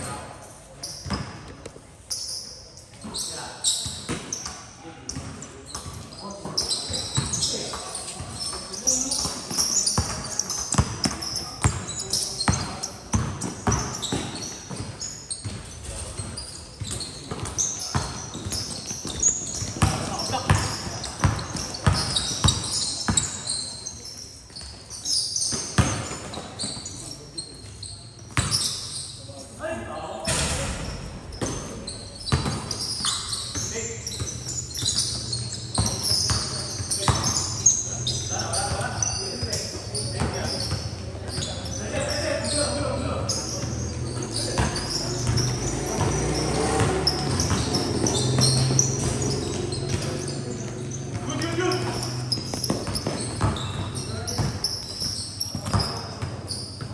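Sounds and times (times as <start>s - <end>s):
sneaker squeaks: 0.0s - 56.9s
basketball bouncing on hard court: 5.2s - 7.4s, 9.2s - 23.4s, 25.5s - 26.8s, 30.3s - 37.4s, 43.4s - 56.9s.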